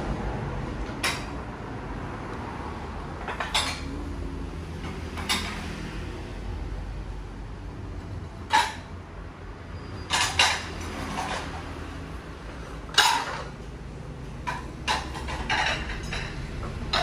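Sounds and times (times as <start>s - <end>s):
ceramic dishes clinking: 3.2s - 4.0s, 8.5s - 8.9s, 10.0s - 11.6s, 12.9s - 13.6s, 14.4s - 17.0s.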